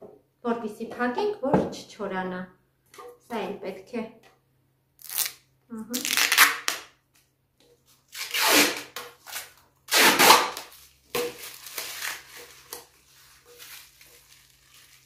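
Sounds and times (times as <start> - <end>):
plastic film peeling and crinkling: 5.0 - 6.9, 7.8 - 15.0.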